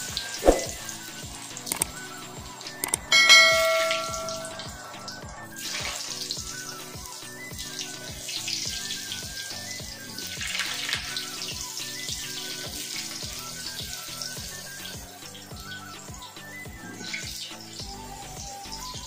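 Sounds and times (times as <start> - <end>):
potatoes deep-frying in oil: 0.0 - 2.8, 5.0 - 19.0
background music with beat: 0.0 - 19.0
clicks: 1.7 - 2.0, 2.8 - 4.7
bright chime: 2.8 - 5.1.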